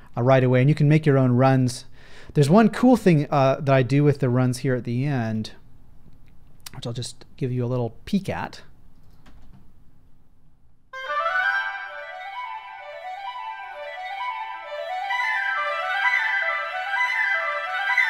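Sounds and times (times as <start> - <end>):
clarinet scale runs: 11.0 - 18.0
flute scale runs: 11.0 - 18.0.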